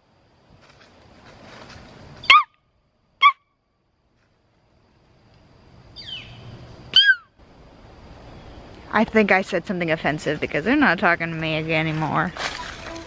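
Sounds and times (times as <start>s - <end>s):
woman squawking: 3.2s - 3.4s, 6.9s - 7.3s.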